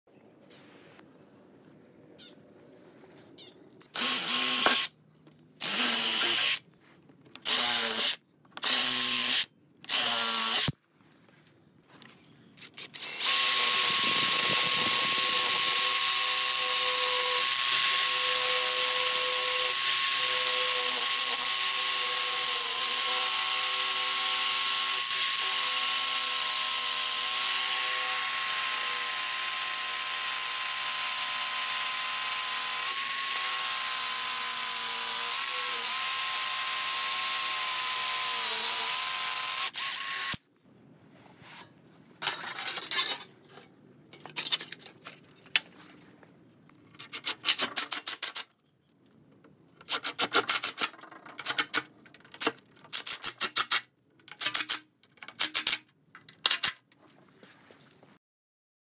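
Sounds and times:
power drill boring into concrete: 0:04.0 - 0:04.9, 0:05.6 - 0:06.6, 0:07.4 - 0:10.7, 0:12.8 - 0:40.4.

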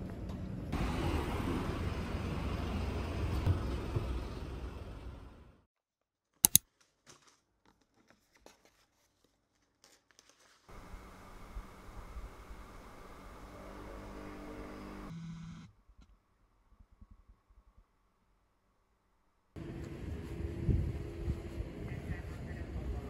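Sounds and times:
passing traffic rumble: 0:00.0 - 0:05.7, 0:10.7 - 0:15.1, 0:19.6 - 0:23.0
sharp clicks: 0:06.4 - 0:06.6.

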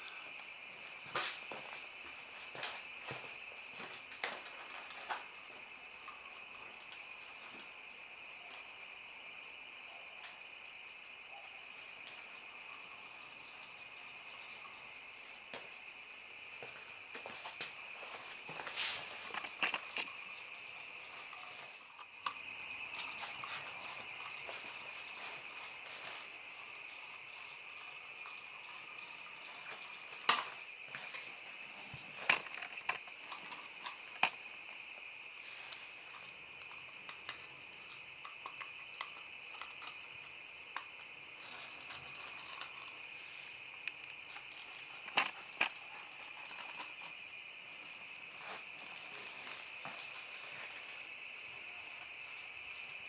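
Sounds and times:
toy car clicking on wooden floor: 0:19.0 - 0:20.2, 0:40.8 - 0:43.0, 0:43.9 - 0:47.2.

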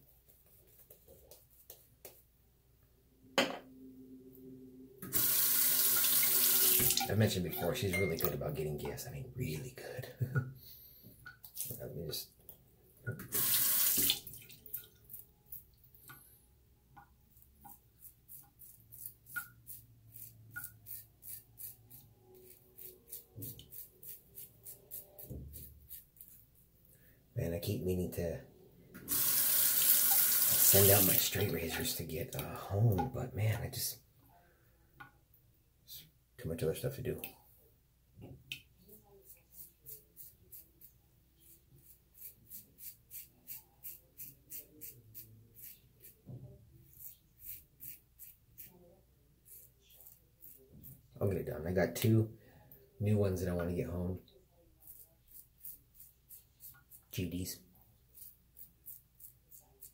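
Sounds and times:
razor scraping stubble: 0:17.7 - 0:26.6, 0:39.2 - 0:46.2, 0:46.8 - 0:48.8, 0:49.4 - 0:51.1, 0:54.8 - 0:57.4, 0:58.1 - 0:59.9.

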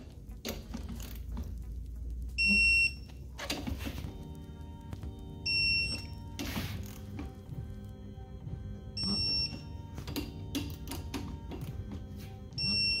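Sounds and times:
torque wrench beep: 0:02.4 - 0:03.1, 0:05.5 - 0:06.2, 0:09.0 - 0:09.6, 0:12.6 - 0:13.0.

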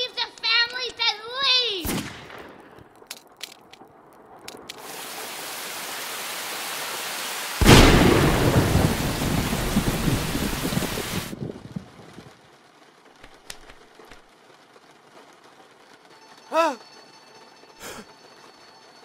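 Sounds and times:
steady rain: 0:00.0 - 0:19.0
thunderclap rumbling: 0:07.6 - 0:12.6.

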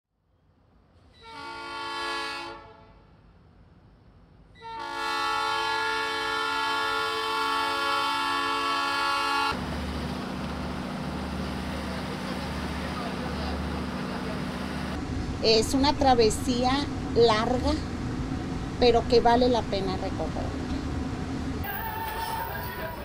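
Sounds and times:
locomotive air horn: 0:01.1 - 0:03.1, 0:04.6 - 0:09.6, 0:21.6 - 0:23.0.

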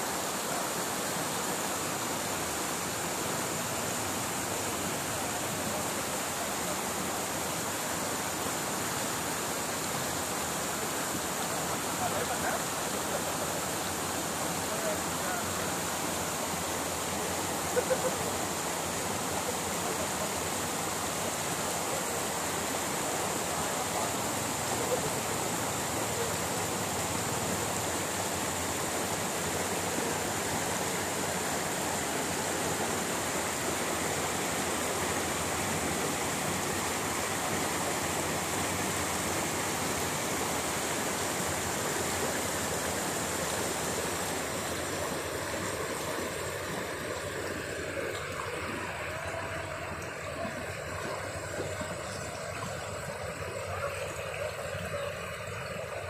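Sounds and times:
stream rushing over stones: 0:00.0 - 0:56.0.

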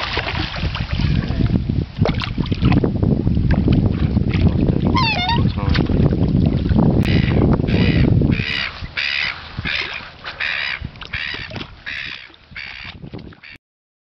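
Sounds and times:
wind rumble on microphone: 0:00.0 - 0:13.6
swans calling: 0:05.0 - 0:05.5, 0:07.1 - 0:12.9.

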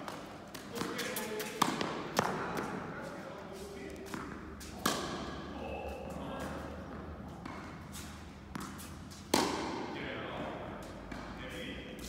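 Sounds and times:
tennis ball hits echoing: 0:01.6 - 0:02.8, 0:04.1 - 0:05.4, 0:08.5 - 0:10.0.

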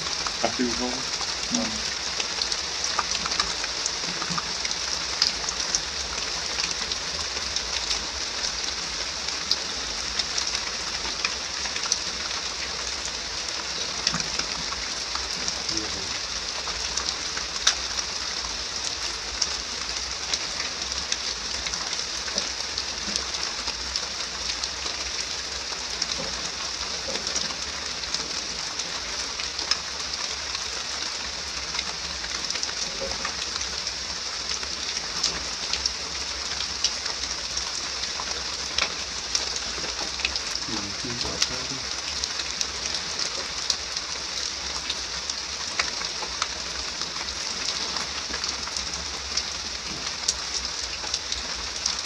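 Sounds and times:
heavy rain hissing: 0:00.0 - 0:02.7, 0:14.9 - 0:17.4, 0:39.0 - 0:44.7.

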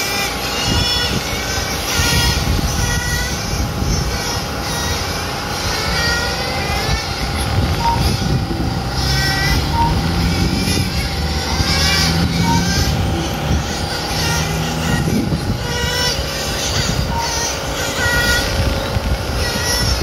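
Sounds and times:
rc car motors whining: 0:00.0 - 0:20.0
short high beeps: 0:07.7 - 0:10.7, 0:11.8 - 0:13.8.

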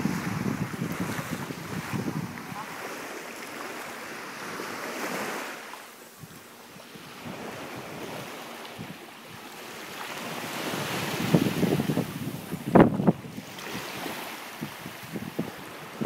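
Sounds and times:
wind buffeting microphone: 0:00.0 - 0:02.8, 0:10.2 - 0:16.0
small waves washing on sand: 0:00.0 - 0:16.0.

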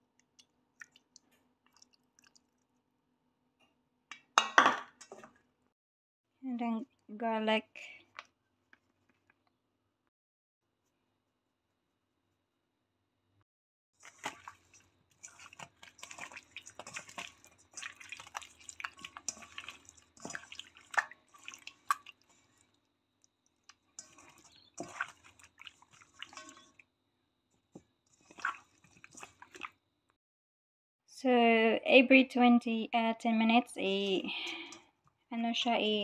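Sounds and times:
wet meat squeezed in marinade: 0:00.0 - 0:02.8, 0:14.0 - 0:26.9, 0:27.6 - 0:29.8.

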